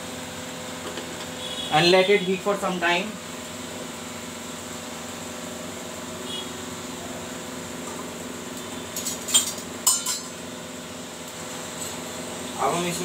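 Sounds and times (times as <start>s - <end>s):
metal spoon clinking against pan: 8.9s - 10.4s.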